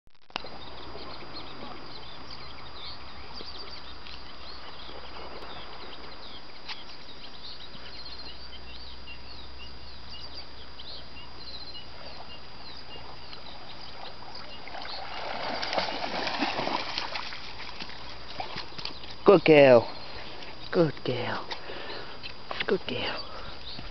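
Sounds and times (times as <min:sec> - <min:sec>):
small birds chirping: 0:00.4 - 0:23.9
dog splashing through water: 0:14.5 - 0:19.2.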